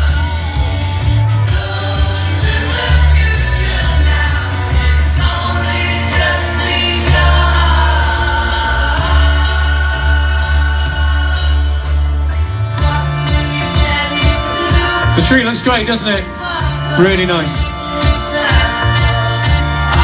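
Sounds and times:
amplified song with bass and singing: 0.0s - 20.0s.

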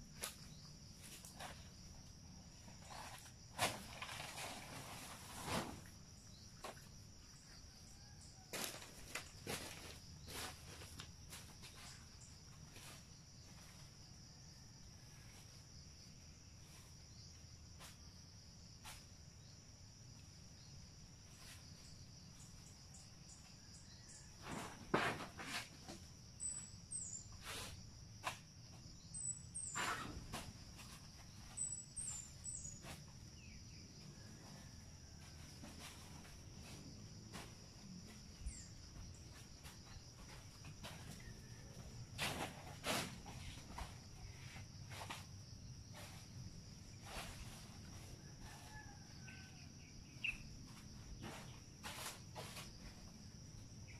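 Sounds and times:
insects droning: 0.0s - 53.9s
sharp knocks and rustles: 24.0s - 26.2s, 29.6s - 33.4s, 34.4s - 48.9s, 50.7s - 53.2s.

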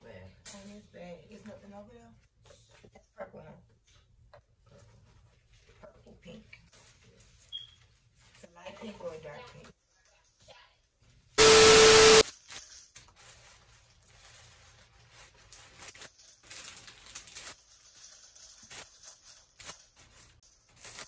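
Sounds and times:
loud hiss with tone: 11.4s - 12.2s
tissue paper crinkling: 12.3s - 21.0s.

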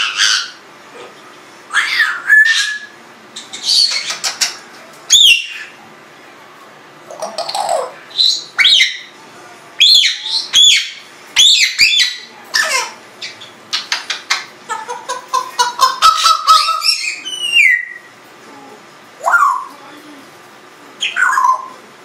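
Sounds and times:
parrot squawk: 0.0s - 0.6s, 1.7s - 3.0s, 9.8s - 13.5s, 14.2s - 18.1s, 21.0s - 21.8s
parrot whistling: 1.7s - 3.0s, 5.1s - 5.8s, 8.1s - 9.1s, 9.8s - 12.3s, 15.8s - 18.1s, 21.0s - 21.8s.

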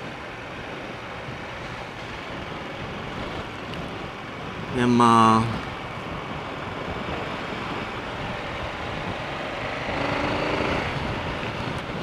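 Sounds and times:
wind and road noise: 0.0s - 12.0s
motorcycle engine: 6.0s - 12.0s.

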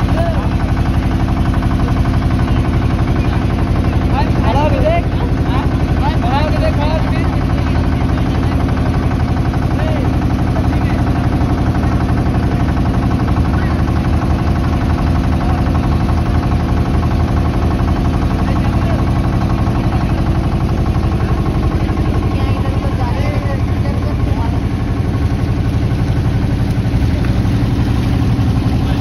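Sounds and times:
motorboat engine droning: 0.0s - 29.0s
faint chatter of passengers: 7.3s - 15.9s.

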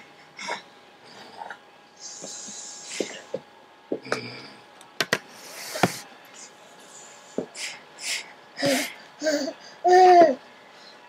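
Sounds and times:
knocks and taps: 5.0s - 5.2s.

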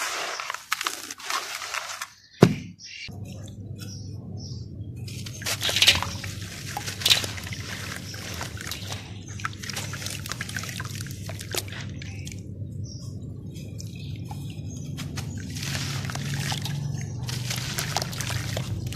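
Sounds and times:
hand squeezing wet dirt: 0.0s - 2.3s, 5.1s - 18.9s
dirt dropping into water: 5.2s - 12.4s, 14.9s - 18.9s.

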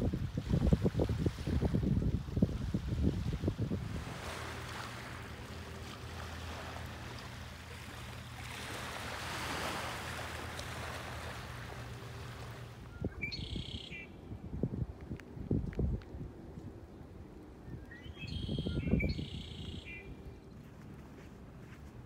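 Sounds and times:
waves washing onto gravel beach: 8.4s - 11.8s
blackbird buzzy call: 13.0s - 14.2s, 18.0s - 20.1s.

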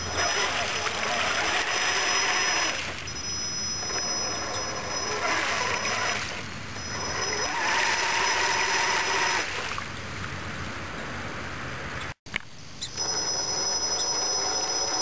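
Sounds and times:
tyres churning and splashing water: 0.0s - 3.1s, 3.8s - 11.0s
electric motor whine: 0.0s - 9.8s, 12.8s - 15.0s.

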